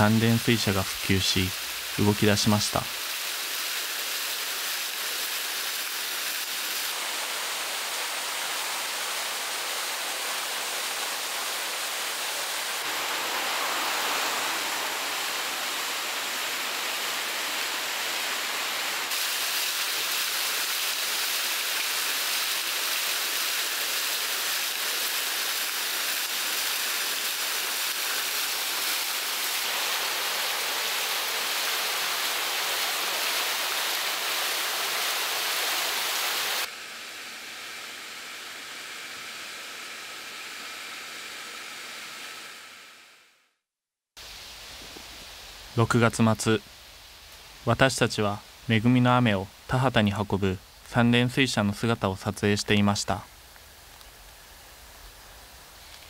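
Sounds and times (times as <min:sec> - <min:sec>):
waterwheel water pouring and splashing: 0:00.0 - 0:36.7
water churning in channel: 0:03.0 - 0:36.7.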